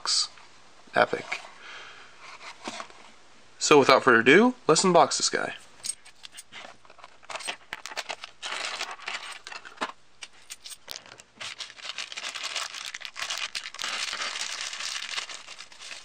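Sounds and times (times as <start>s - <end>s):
plastic bag crinkling: 7.0s - 9.8s, 10.8s - 16.0s.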